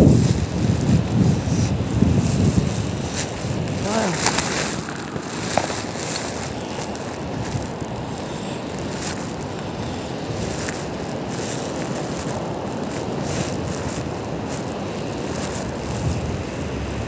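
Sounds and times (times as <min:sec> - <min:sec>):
surf: 0:00.0 - 0:17.0
wind buffeting microphone: 0:00.0 - 0:17.0.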